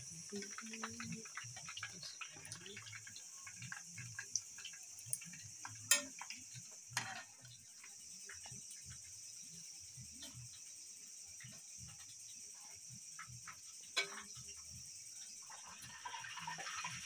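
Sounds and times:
oil crackling and popping: 0:00.0 - 0:17.0
metal spoon knocking pan: 0:05.7 - 0:06.3.

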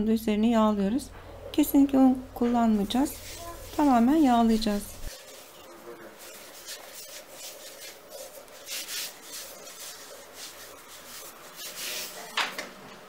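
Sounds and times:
hand rubbing oil on wood: 0:02.7 - 0:12.4.

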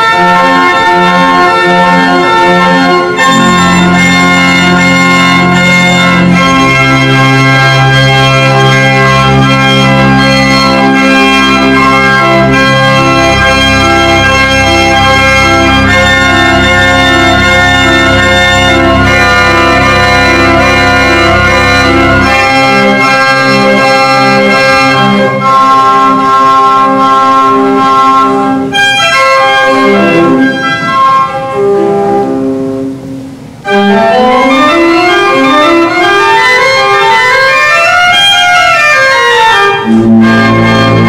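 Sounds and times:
pipe organ playing chords: 0:00.0 - 0:41.0
low pedal bass: 0:03.2 - 0:24.5.

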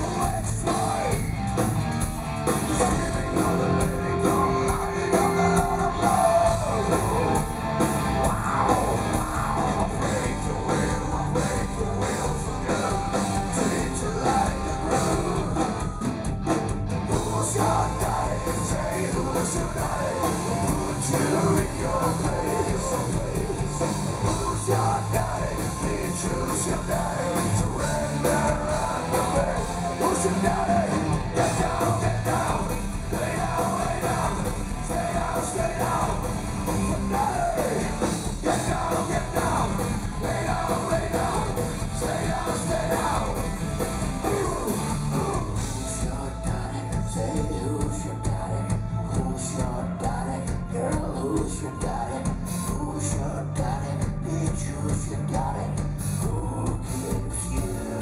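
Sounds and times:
heavy metal band playing: 0:00.0 - 0:58.0.

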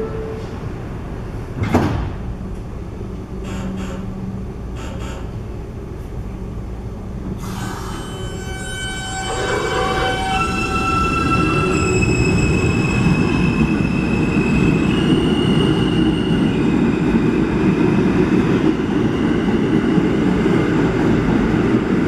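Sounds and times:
train doors sliding shut: 0:01.5 - 0:02.7, 0:03.4 - 0:05.5.

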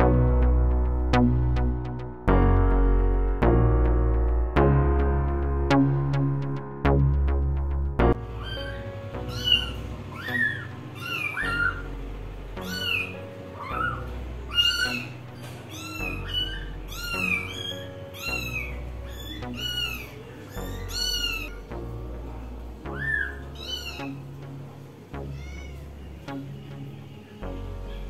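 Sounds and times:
background music with bass: 0:00.0 - 0:15.4, 0:16.0 - 0:28.0
kittens mewing: 0:08.4 - 0:11.9, 0:12.6 - 0:21.7, 0:22.9 - 0:24.3, 0:25.2 - 0:26.0.

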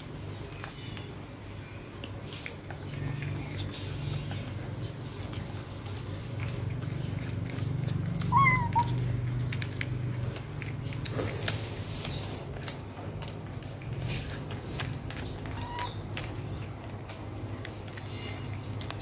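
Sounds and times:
kitten chewing and tearing meat: 0:00.0 - 0:19.0
kitten mewing: 0:08.2 - 0:09.1.

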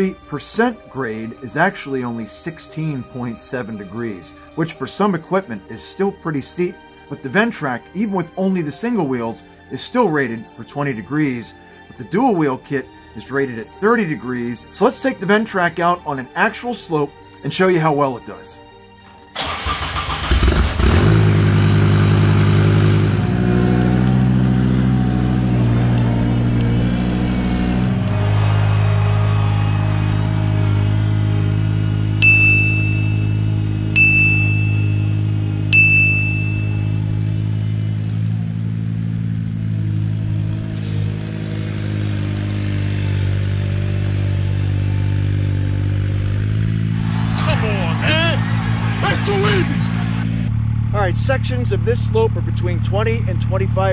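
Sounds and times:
tractor engine running: 0:19.2 - 0:28.3, 0:45.8 - 0:53.9
short high-pitched beeps: 0:34.0 - 0:37.0.

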